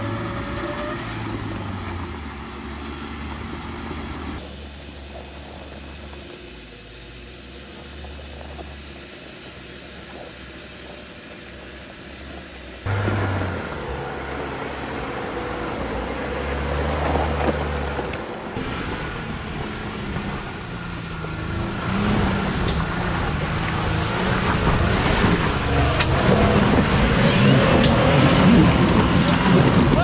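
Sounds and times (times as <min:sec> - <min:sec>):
engine revving hard: 0:12.8 - 0:18.2, 0:21.5 - 0:30.0.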